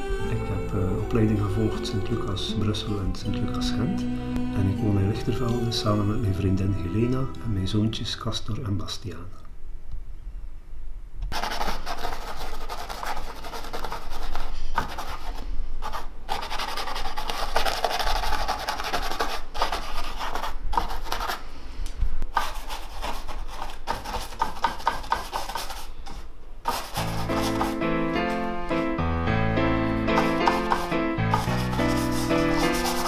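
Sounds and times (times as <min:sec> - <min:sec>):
piano-like music: 0:00.0 - 0:08.5, 0:26.9 - 0:33.0
paintbrush rubbing on canvas: 0:11.3 - 0:21.4, 0:22.3 - 0:28.4, 0:30.1 - 0:33.0.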